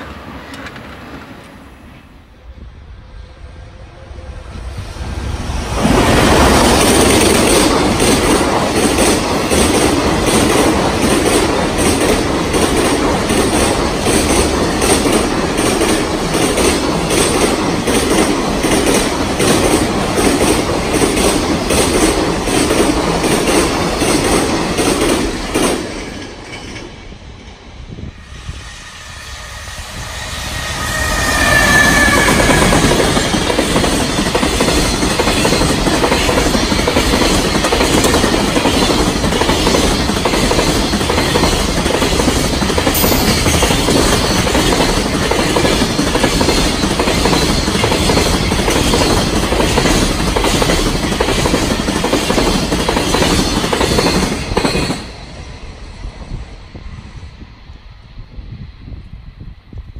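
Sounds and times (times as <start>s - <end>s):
high wheel squeal: 28.7s - 33.2s
train wheels clattering over rail joints: 32.4s - 55.1s.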